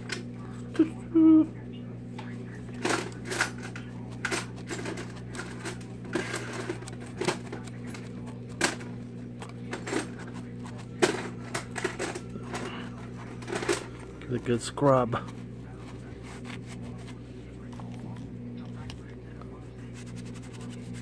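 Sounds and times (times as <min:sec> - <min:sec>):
steady low hum: 0:00.0 - 0:21.0
scouring pad scrubbing metal: 0:19.9 - 0:21.0.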